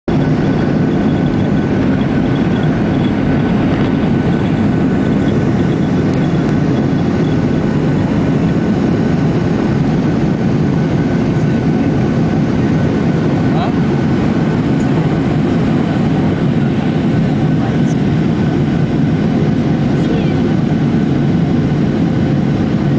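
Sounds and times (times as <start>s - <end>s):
faint high whine: 0.1s - 10.4s
jet engines at takeoff thrust: 0.1s - 22.9s.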